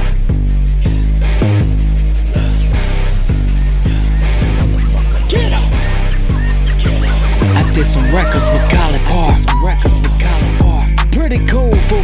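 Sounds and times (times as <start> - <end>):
heavy low guitar riff: 0.0 - 12.0
steady drum beat: 7.4 - 12.0.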